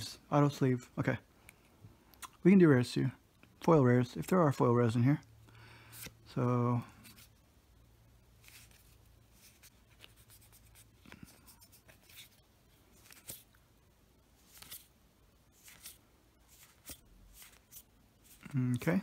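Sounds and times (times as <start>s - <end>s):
low room hum: 0.0s - 19.0s
cards rustling and clicking: 5.8s - 7.4s, 8.4s - 13.6s, 14.4s - 19.0s.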